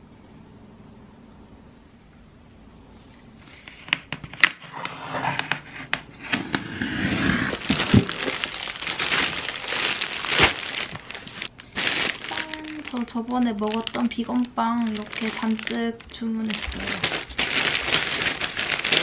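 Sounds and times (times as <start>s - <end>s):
plastic bags crinkling: 7.1s - 19.0s.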